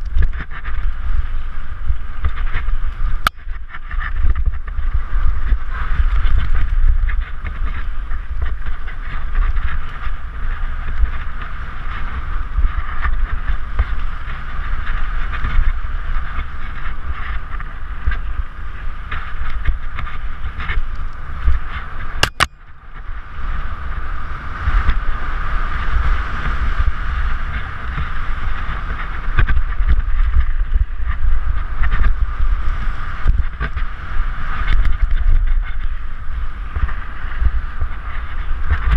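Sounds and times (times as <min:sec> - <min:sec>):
tyres rumbling on dirt trail: 0:00.0 - 0:38.9
wind buffeting microphone: 0:00.0 - 0:38.9
bike knocks and rattles: 0:24.7 - 0:38.9.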